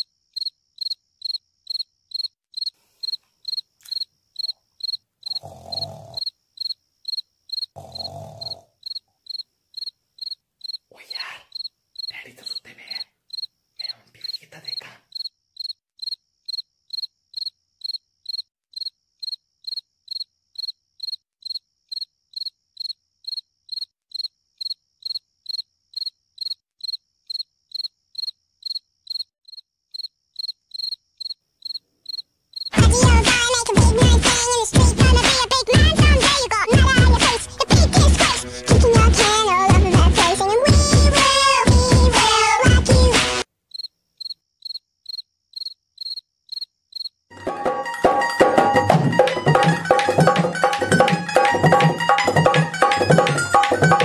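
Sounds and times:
crickets chirping: 0.0s - 32.8s, 43.7s - 47.3s.

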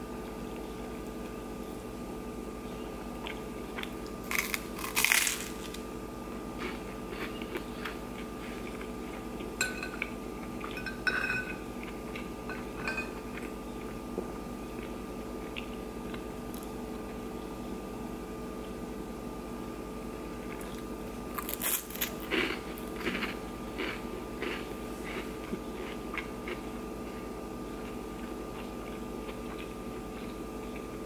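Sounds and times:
chewing and crunching toast: 2.8s - 14.0s, 14.6s - 17.2s, 20.4s - 31.0s.

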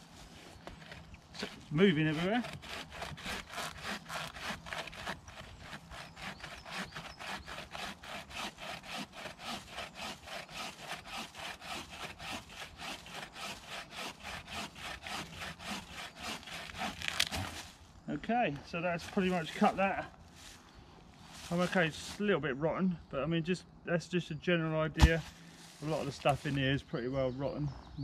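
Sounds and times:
bow saw sawing log: 0.0s - 17.8s.

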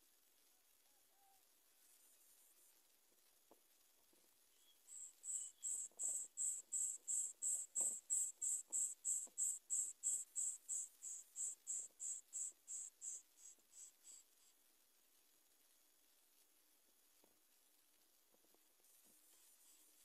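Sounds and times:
soft ticks of nest material: 0.0s - 20.0s
insect chirping: 4.5s - 14.6s.

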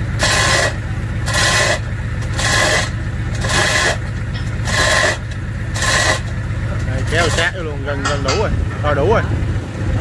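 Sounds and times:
propeller shaft rasping scrape: 0.0s - 7.9s
steady engine hum: 0.0s - 10.0s.

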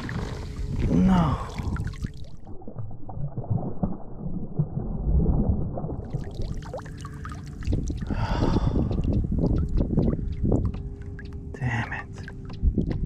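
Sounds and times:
water sloshing and gurgling: 0.0s - 13.0s
water dripping: 5.8s - 13.0s.

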